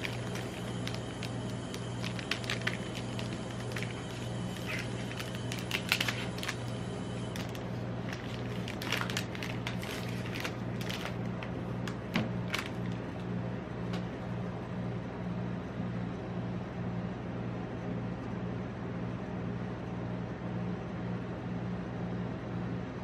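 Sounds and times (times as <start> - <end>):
cardboard sleeve opened: 0.0 - 13.0
wrapper tearing and crinkling: 0.0 - 13.2
refrigeration unit hum: 0.0 - 23.0.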